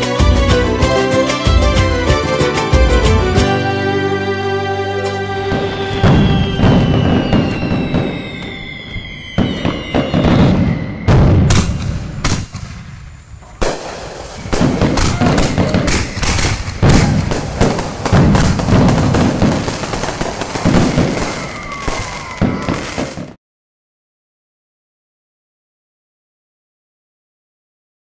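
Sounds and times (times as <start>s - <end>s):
falling firework whistle: 5.2s - 23.4s
fireworks bangs and crackling: 5.4s - 23.4s.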